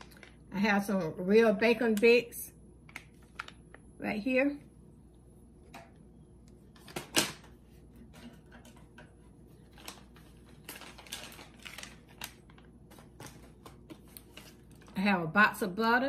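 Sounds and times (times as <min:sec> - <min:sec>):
packaging rustling: 0:09.5 - 0:15.0.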